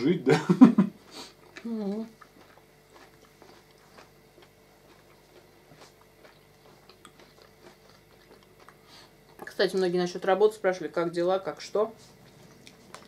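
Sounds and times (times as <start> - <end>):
soft chewing: 1.0 - 9.8, 11.9 - 13.0.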